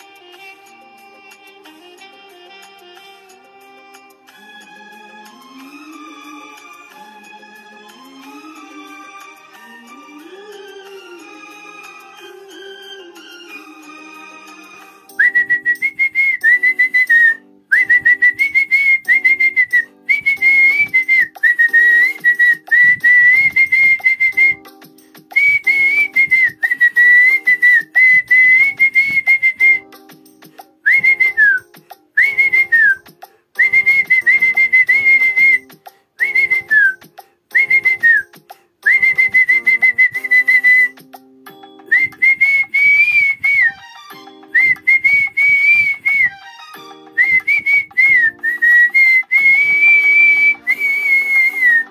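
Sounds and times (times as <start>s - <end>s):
backing music track: 0.0s - 51.9s
man whistling a melody: 15.1s - 51.9s.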